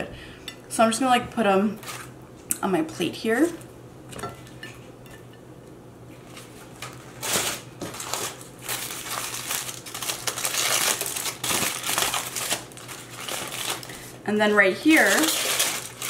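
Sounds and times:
aluminium foil crinkling: 0:06.2 - 0:16.0.

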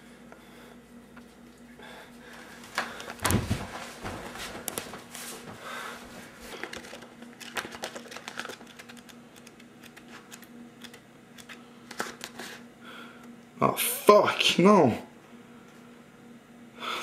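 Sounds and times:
faint steady hum: 0:00.0 - 0:17.0
book pages flipping: 0:03.0 - 0:05.6, 0:06.4 - 0:12.6.

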